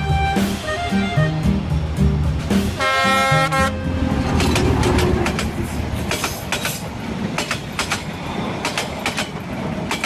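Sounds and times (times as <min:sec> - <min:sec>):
train rumble: 0:00.0 - 0:10.0
train horn: 0:02.8 - 0:04.1
train wheels clicking over rail joints: 0:04.2 - 0:10.0.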